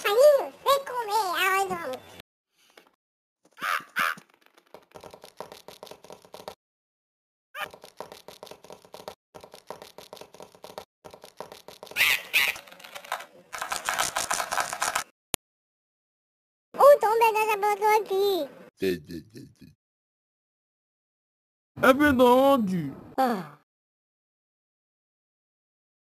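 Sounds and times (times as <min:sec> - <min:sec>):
cartoon birds squawking: 0:03.6 - 0:04.2, 0:11.9 - 0:12.7.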